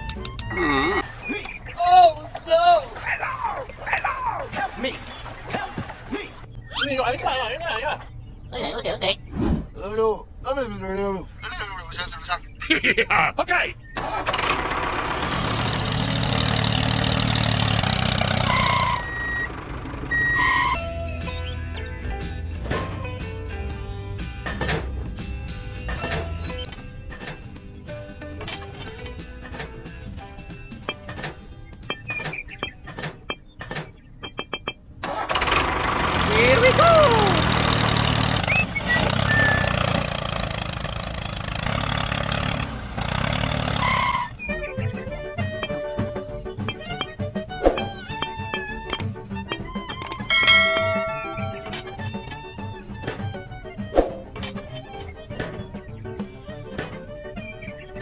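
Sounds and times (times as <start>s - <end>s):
tractor engine running: 13.9s - 21.5s, 23.5s - 53.6s
two-tone reversing beeper: 18.5s - 19.5s, 20.1s - 20.8s.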